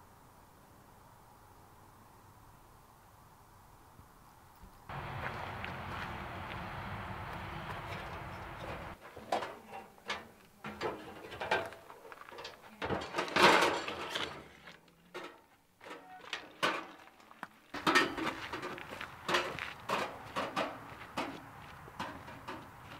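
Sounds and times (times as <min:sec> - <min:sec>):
metal grill clanks and rattles: 0:07.8 - 0:14.5, 0:17.8 - 0:21.3, 0:22.0 - 0:22.7.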